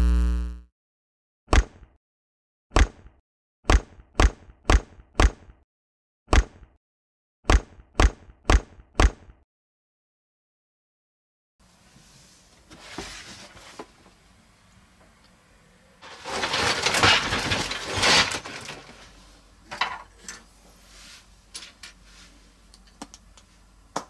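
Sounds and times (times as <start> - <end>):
cardboard box scraping and rustling: 12.7 - 13.9, 16.0 - 19.1.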